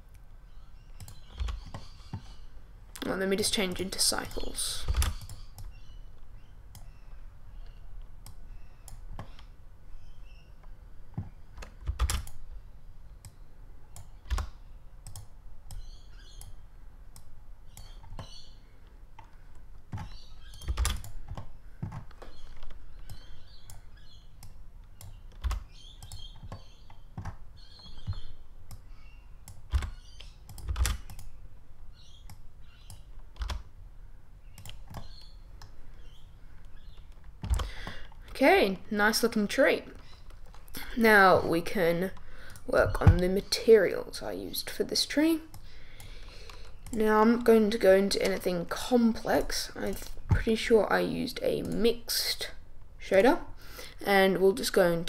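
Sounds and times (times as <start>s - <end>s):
computer keyboard clicks: 11.6s - 12.4s, 14.0s - 16.5s, 19.9s - 23.8s, 24.4s - 27.4s, 29.5s - 31.3s, 32.3s - 33.7s, 34.6s - 35.7s.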